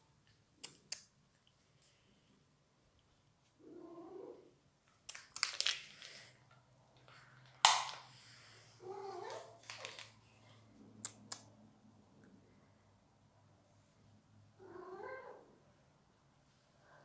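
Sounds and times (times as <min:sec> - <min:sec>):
cat meowing: 0:14.6 - 0:15.5.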